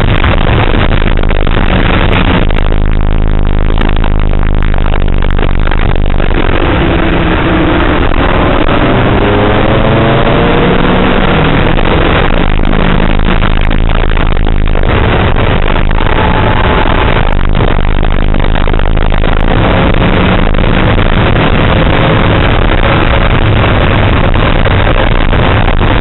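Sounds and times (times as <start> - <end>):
race car engine accelerating: 6.3 - 13.4.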